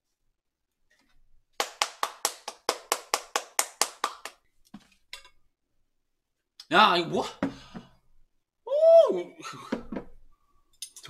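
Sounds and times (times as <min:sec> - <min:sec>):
hands clapping: 0:01.6 - 0:04.4.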